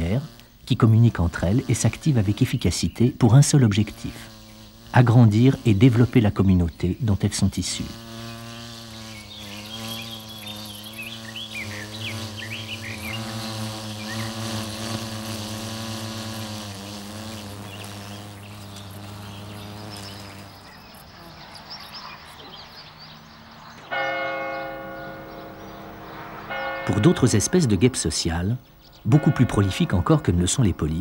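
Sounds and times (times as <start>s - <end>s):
small birds chirping: 0.0s - 31.0s
wasps buzzing: 0.0s - 31.0s
church bell ringing: 23.9s - 28.1s, 29.1s - 30.6s.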